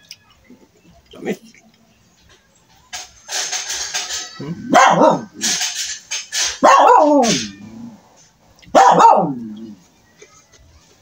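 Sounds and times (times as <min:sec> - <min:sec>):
dog barking: 0:04.7 - 0:05.3, 0:06.6 - 0:07.4, 0:08.7 - 0:09.4.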